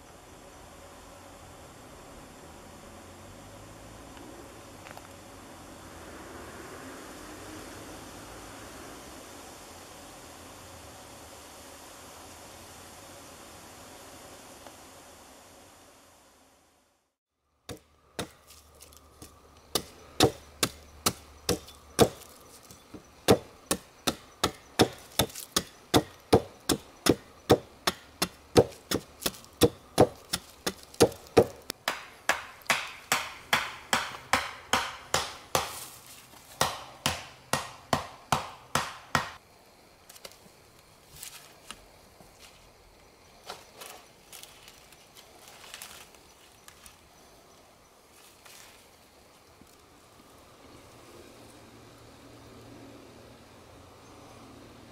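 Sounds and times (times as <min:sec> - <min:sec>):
chopping blows on wooden pole: 0:19.7 - 0:35.8, 0:36.6 - 0:39.4.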